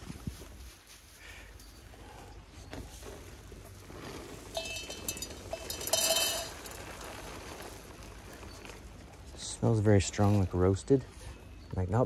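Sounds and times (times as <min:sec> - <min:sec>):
grain pouring into metal bowl: 0:04.3 - 0:08.3
metal bowl ringing: 0:04.6 - 0:06.7.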